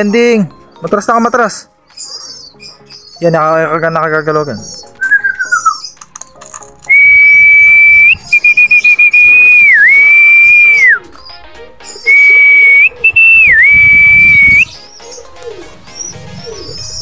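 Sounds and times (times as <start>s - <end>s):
fluttering whistle trill: 6.9s - 11.0s, 12.1s - 14.7s
person whistling loudly: 6.9s - 11.0s, 12.0s - 14.7s.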